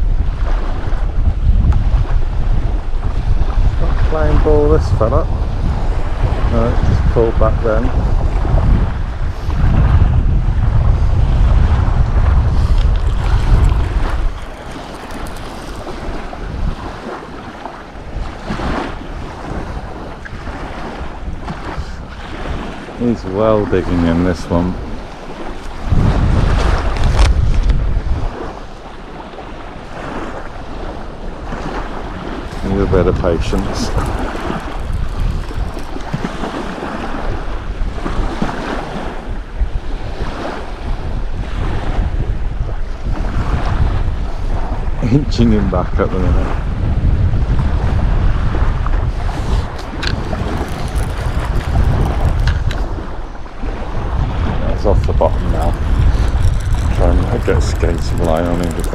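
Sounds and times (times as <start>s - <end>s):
waves washing on shore: 0.0s - 58.9s
wind buffeting microphone: 0.0s - 58.9s.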